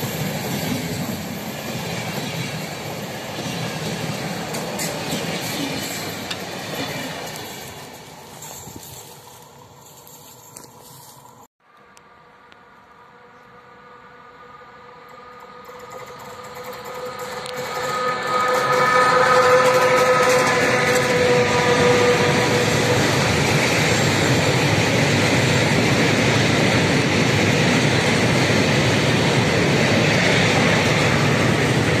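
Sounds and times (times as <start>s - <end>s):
train coaches rolling past: 0.0s - 11.5s, 12.2s - 32.0s
train horn: 13.0s - 24.0s.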